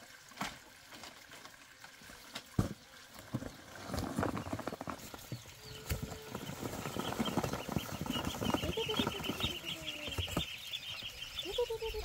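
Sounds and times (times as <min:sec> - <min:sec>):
cardboard box rustling and scraping: 0:03.4 - 0:05.4
ducklings scrabbling: 0:03.4 - 0:12.0
faint duckling peep: 0:05.6 - 0:12.0.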